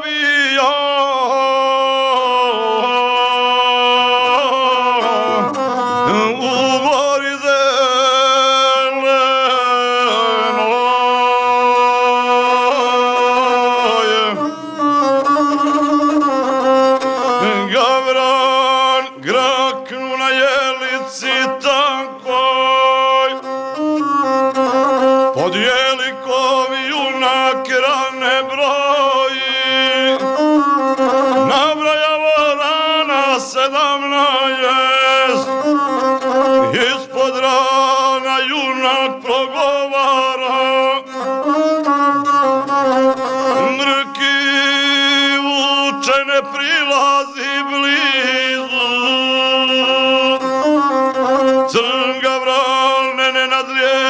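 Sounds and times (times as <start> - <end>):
bowed folk fiddle melody: 0.0 - 54.0.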